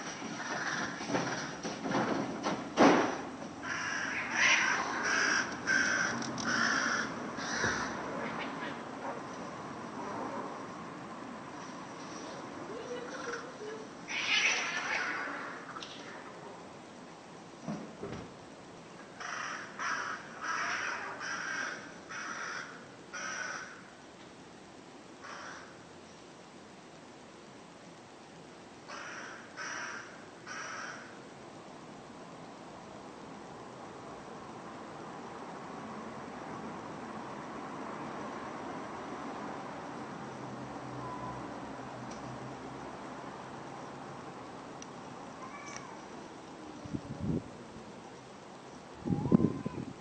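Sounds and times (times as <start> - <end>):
crow cawing: 0.4 - 1.6, 3.6 - 8.8, 19.2 - 23.9, 25.2 - 25.8, 28.9 - 31.2.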